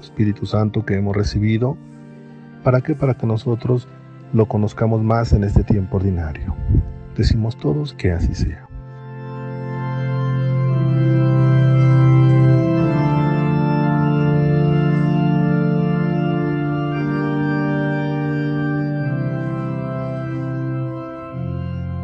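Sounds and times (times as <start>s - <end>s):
organ playing slow chords: 0.0s - 22.0s.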